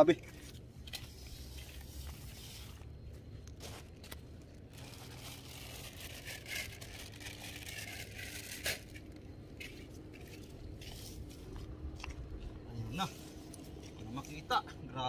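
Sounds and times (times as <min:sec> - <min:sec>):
rustling and crinkling handling noise: 0:00.0 - 0:14.6
low steady rumble: 0:00.0 - 0:15.0.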